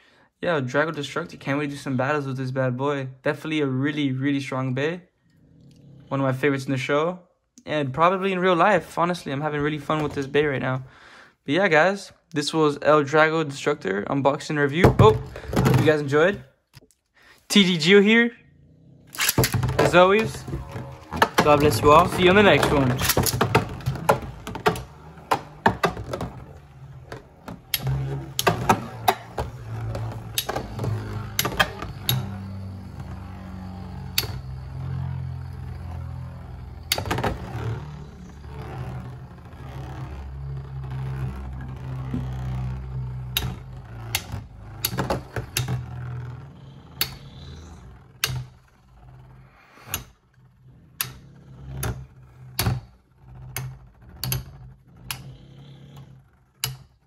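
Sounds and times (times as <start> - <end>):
spinning tops whirring: 19.1 - 46.3.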